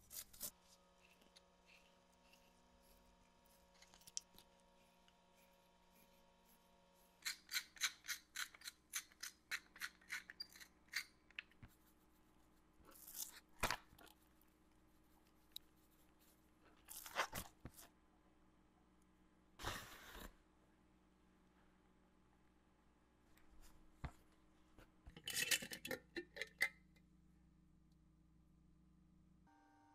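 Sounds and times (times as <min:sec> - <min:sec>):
metal spice grinder clicking: 0:07.2 - 0:11.4.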